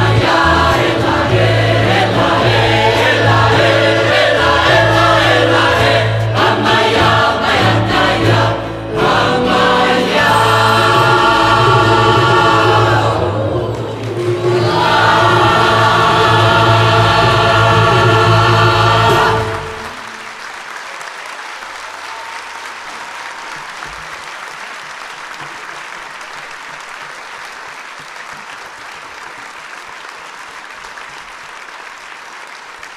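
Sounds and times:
choir singing with band: 0:00.0 - 0:20.2
audience applause: 0:11.9 - 0:17.6, 0:18.6 - 0:32.9.

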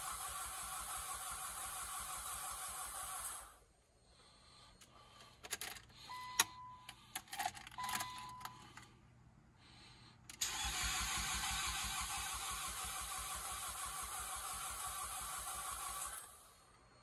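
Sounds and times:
car starter cranking: 0:10.3 - 0:16.2.

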